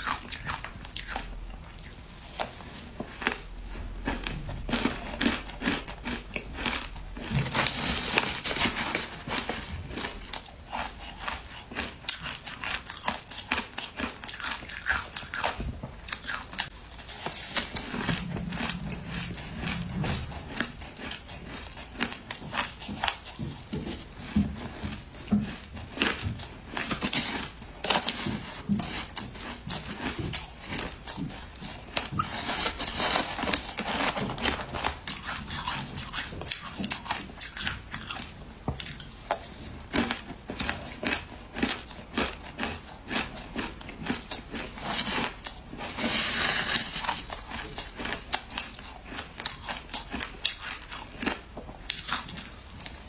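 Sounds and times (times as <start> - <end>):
ice crunching being chewed: 0.0 - 53.0
metal spoon scraping ice: 41.6 - 50.9.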